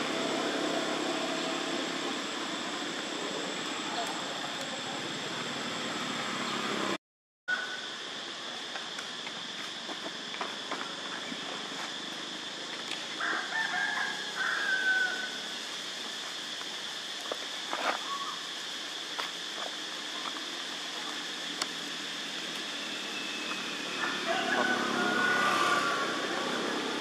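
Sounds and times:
steady high hiss: 0.0 - 27.0
rooster crowing: 13.2 - 15.5, 23.9 - 26.7.

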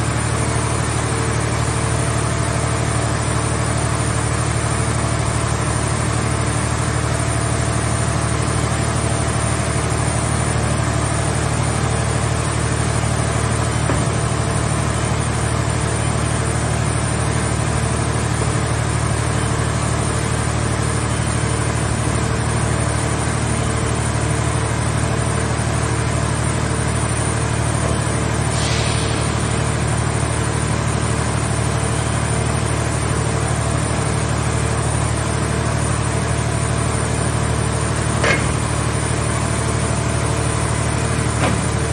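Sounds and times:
hydraulic power unit humming: 0.0 - 41.9
brief hiss: 28.6 - 29.5.

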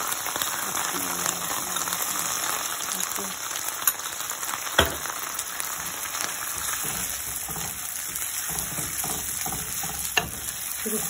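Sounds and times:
sauce sizzling in hot oil: 0.0 - 11.0
spatula stirring in pan: 5.6 - 11.0.

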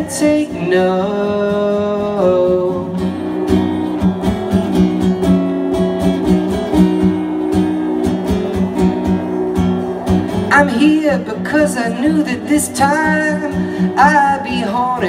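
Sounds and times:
man singing: 0.0 - 3.1, 10.5 - 15.0
acoustic guitar strumming: 0.0 - 15.0.

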